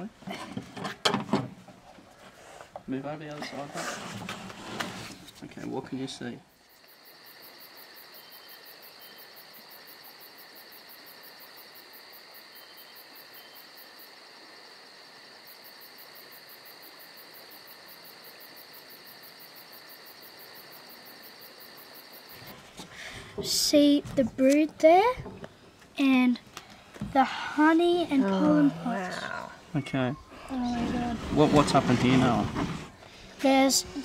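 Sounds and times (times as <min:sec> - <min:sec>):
insects trilling: 0:06.0 - 0:22.6, 0:24.4 - 0:32.2.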